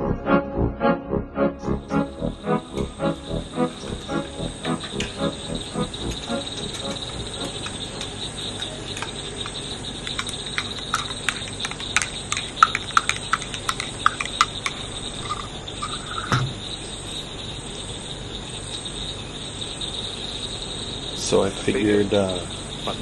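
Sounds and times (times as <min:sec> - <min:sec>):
high cricket trill: 0:01.7 - 0:23.0
frog clicks and chirps: 0:01.9 - 0:17.9
thump: 0:16.3 - 0:16.6.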